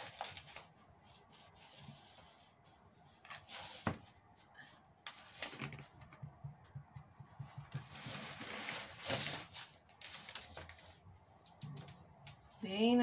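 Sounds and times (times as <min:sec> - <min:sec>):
soft low taps: 0:06.1 - 0:07.8.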